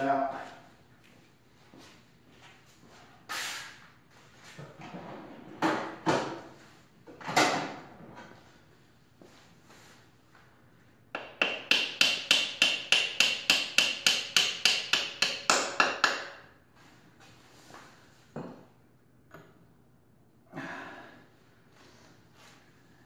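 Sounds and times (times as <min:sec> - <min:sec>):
hammer tapping on bolt: 0:11.2 - 0:16.4.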